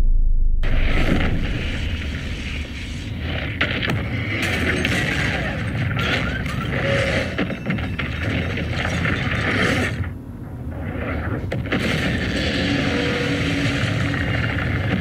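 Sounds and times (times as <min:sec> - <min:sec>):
explosion boom: 0:00.0 - 0:04.2
sharp crashes: 0:00.0 - 0:10.0
rumble of fire and falling debris: 0:00.6 - 0:15.0.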